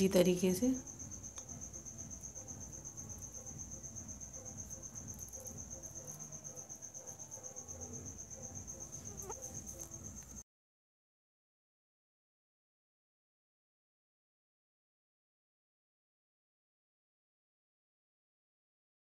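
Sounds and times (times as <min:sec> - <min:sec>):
insect trilling: 0:00.0 - 0:10.4.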